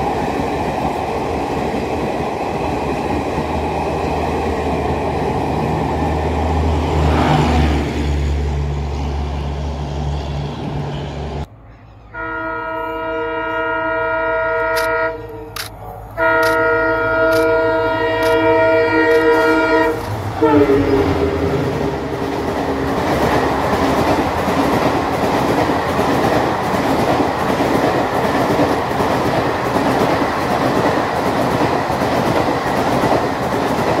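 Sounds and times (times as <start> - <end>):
diesel locomotive engine: 0.0 - 34.0
train coaches rolling by: 0.0 - 34.0
locomotive multi-tone horn: 10.3 - 22.9.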